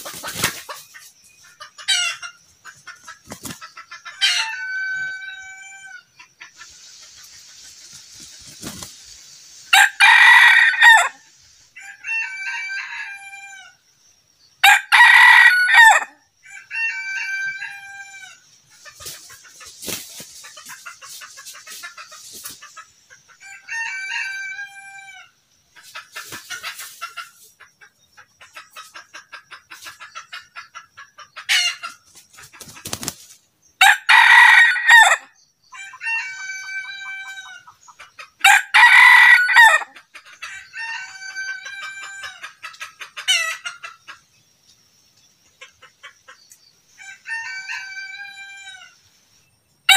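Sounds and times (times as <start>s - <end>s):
rooster crowing: 9.7s - 11.2s, 11.8s - 13.8s, 14.6s - 18.4s, 23.4s - 25.3s, 33.8s - 35.2s, 35.8s - 37.6s, 38.4s - 39.9s, 40.6s - 42.4s, 47.0s - 49.0s.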